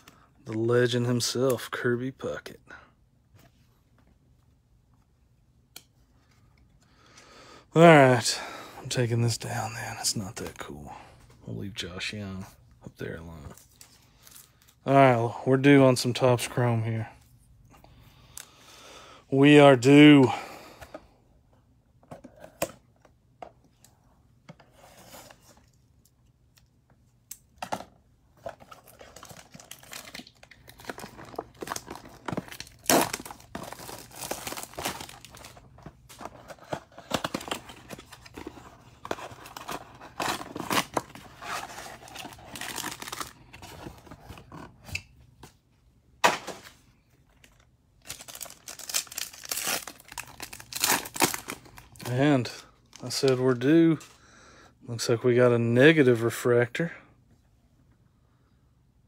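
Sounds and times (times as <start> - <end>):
shrink wrap crinkling and tearing: 28.5 - 44.0, 47.3 - 54.0
foil pack crinkling: 28.6 - 43.5, 47.4 - 53.6.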